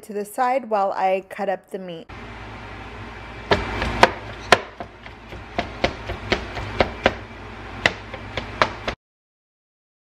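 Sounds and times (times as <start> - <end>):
knife chopping on plastic board: 3.5 - 9.0.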